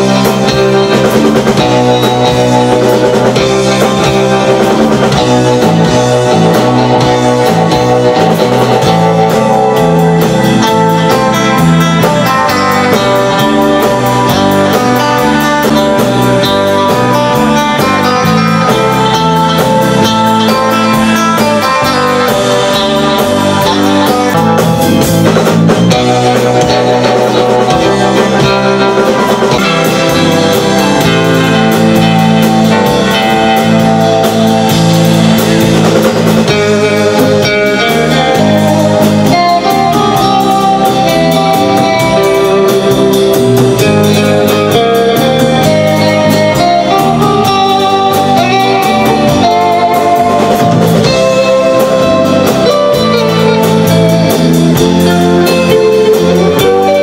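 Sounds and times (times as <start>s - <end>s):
drum kit: 0.0s - 57.0s
electric guitars playing melody: 0.0s - 57.0s.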